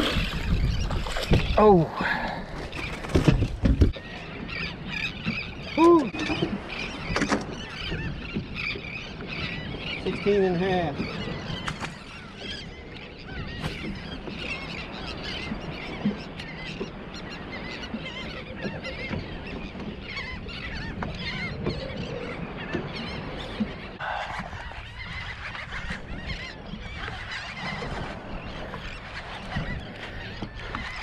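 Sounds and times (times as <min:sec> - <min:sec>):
birds calling: 0:00.0 - 0:31.0.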